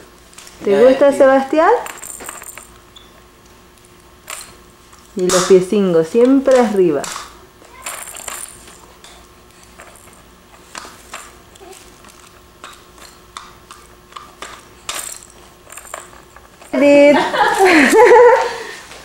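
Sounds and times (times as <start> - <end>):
faint steady hum: 0.0 - 19.0
plastic toy clicks and rattles: 6.3 - 16.9.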